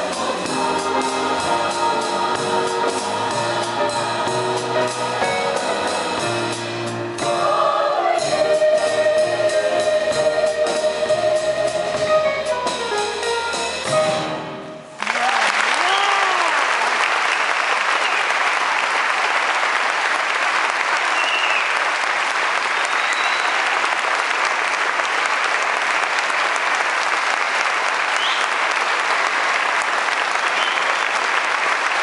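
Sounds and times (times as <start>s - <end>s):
audience applause: 15.0s - 32.0s
whoops and whistles: 21.2s - 21.8s, 22.9s - 23.6s.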